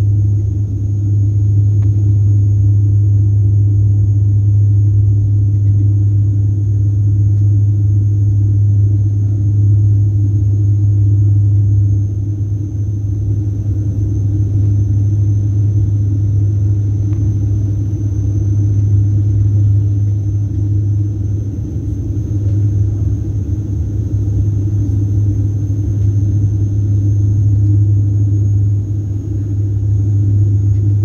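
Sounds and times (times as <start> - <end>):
airliner engine and airflow drone: 0.0 - 31.0
high whine: 0.0 - 31.0.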